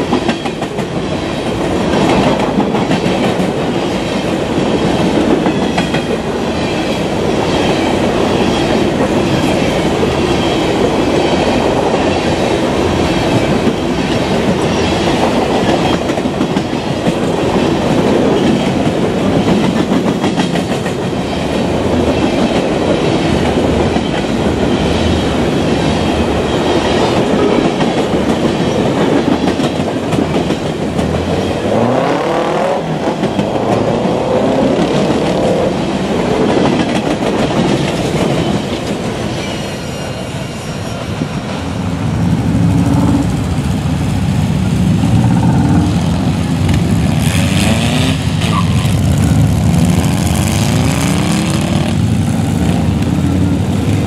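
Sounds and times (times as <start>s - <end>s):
freight cars rumbling and rattling: 41.1s - 54.0s.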